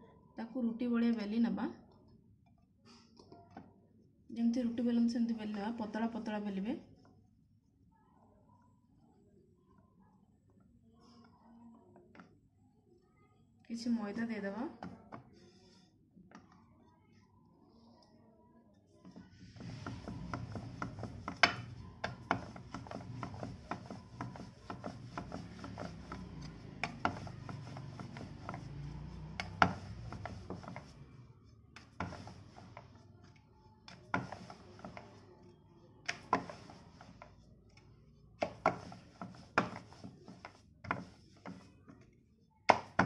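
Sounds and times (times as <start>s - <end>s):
rolling pin rumbling on board: 19.5s - 31.0s, 31.8s - 32.9s.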